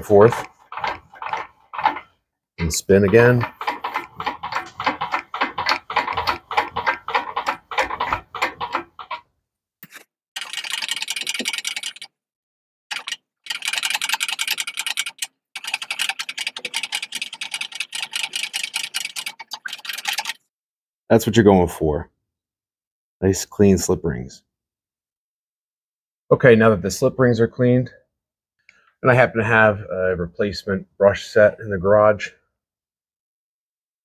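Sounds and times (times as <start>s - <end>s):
rapid clicking and ticking: 0.0s - 9.2s, 10.4s - 12.1s, 12.9s - 20.4s.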